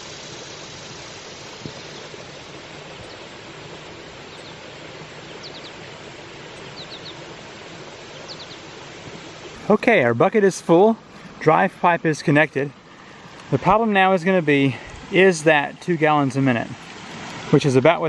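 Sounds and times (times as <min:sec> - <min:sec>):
water rushing over waterfalls: 0:00.0 - 0:18.0.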